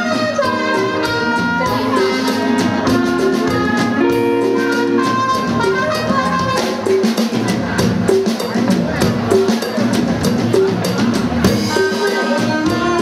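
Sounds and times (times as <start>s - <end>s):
brass horns: 0.0s - 7.1s, 11.7s - 13.0s
live dance band playing: 0.0s - 13.0s.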